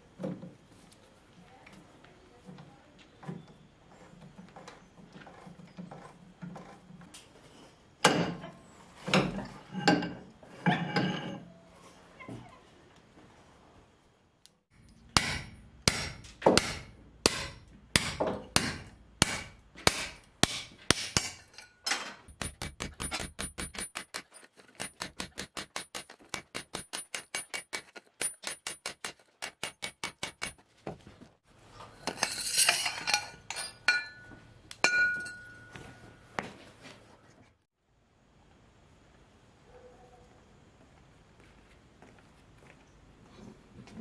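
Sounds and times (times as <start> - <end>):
hammer striking steel tube: 15.1 - 24.2.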